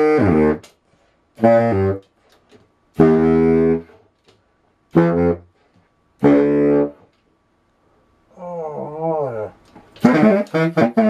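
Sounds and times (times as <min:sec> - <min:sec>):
baritone saxophone notes: 0:00.0 - 0:00.8, 0:01.4 - 0:02.2, 0:03.0 - 0:04.0, 0:04.9 - 0:05.6, 0:06.2 - 0:07.1, 0:08.4 - 0:11.0.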